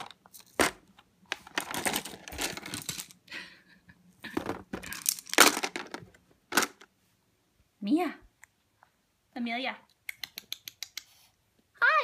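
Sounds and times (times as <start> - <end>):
plastic toys clattering on tray: 0.0 - 3.2, 4.3 - 6.9.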